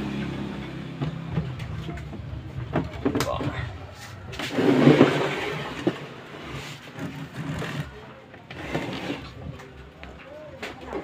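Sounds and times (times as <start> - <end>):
handling noise rustling scrape: 1.6 - 9.5.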